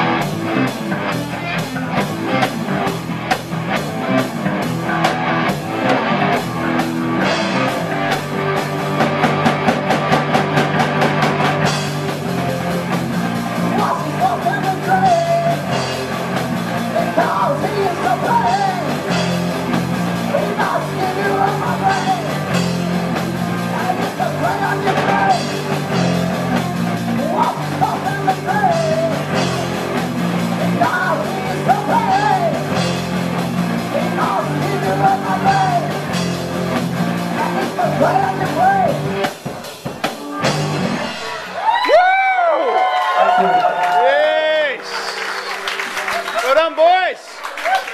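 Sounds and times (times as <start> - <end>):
rock band playing: 0.0 - 47.9
fast drum strokes: 0.1 - 41.5
man singing lead vocal: 13.6 - 19.3, 20.1 - 33.0, 33.8 - 36.3, 37.3 - 39.2.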